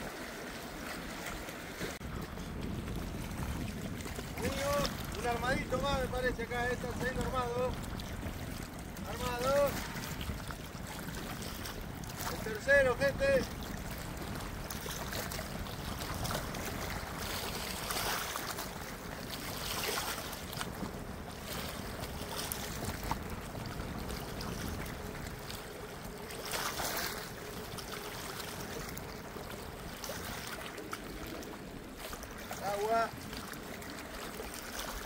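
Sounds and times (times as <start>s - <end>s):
water lapping at bank: 0.0s - 35.0s
wind blowing across microphone: 0.0s - 35.0s.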